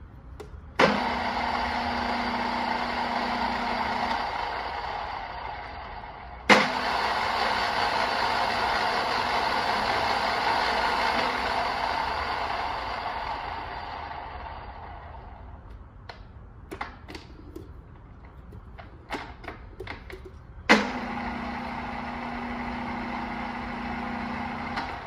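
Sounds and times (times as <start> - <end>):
drill press running: 0.0 - 25.0
clicks and knocks of controls: 15.6 - 21.0.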